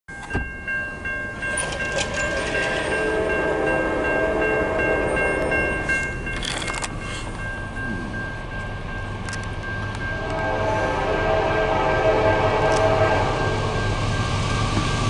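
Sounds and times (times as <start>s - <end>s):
crossing warning bell ringing: 0.1s - 15.0s
locomotive horn blast: 2.6s - 5.9s, 10.1s - 13.8s.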